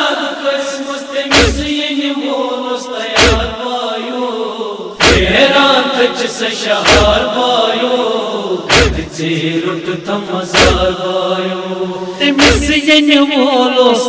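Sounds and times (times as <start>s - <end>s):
men chanting a lament: 0.0s - 14.0s
chest beating thumps: 1.3s - 1.7s, 3.2s - 3.6s, 5.0s - 5.4s, 6.8s - 7.2s, 8.7s - 9.1s, 10.6s - 10.9s, 12.4s - 12.7s.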